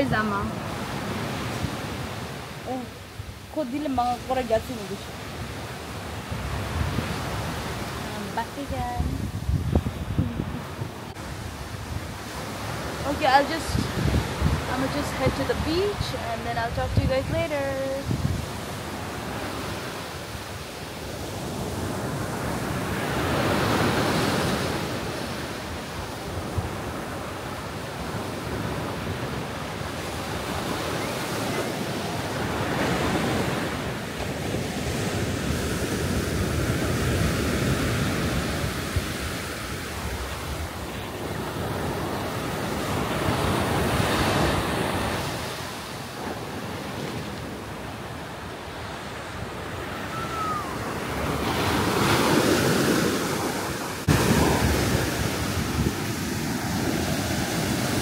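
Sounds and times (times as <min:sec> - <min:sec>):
wind buffeting microphone: 0:00.0 - 0:58.0
surf breaking on beach: 0:03.5 - 0:58.0.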